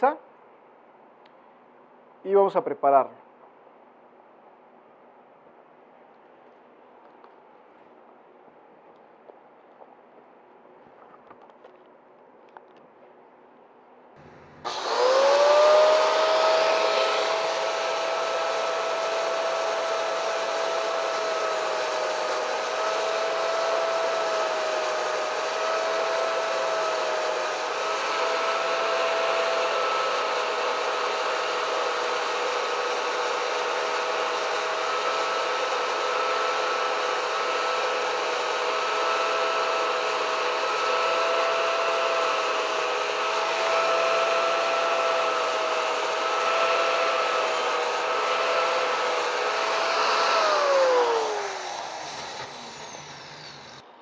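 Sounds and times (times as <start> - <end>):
angle grinder whining: 14.2 - 53.9.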